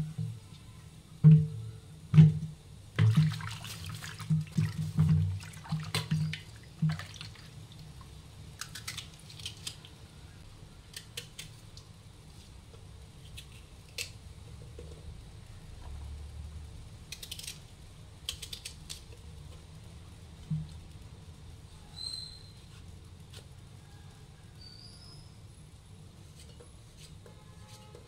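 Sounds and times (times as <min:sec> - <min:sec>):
vegetables splashing into water: 0:03.0 - 0:07.5
water sloshing: 0:03.0 - 0:07.5.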